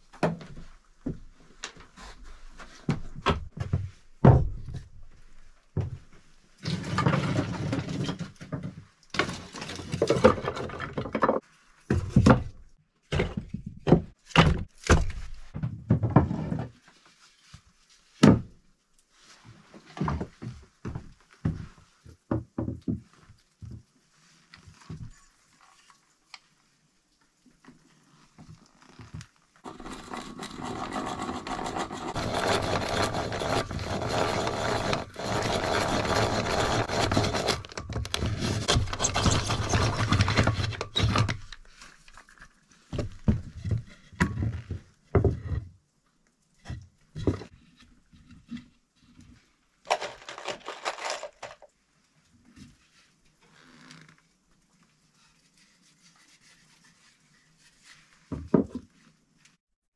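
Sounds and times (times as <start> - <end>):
power drill boring into wood: 29.7 - 37.8.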